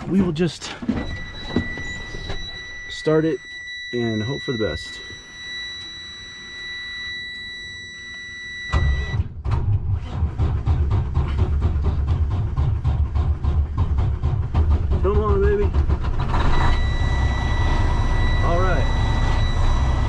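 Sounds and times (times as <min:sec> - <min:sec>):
dash warning buzzer: 0:01.0 - 0:09.2, 0:16.6 - 0:20.0
diesel engine starting and running: 0:08.6 - 0:20.0.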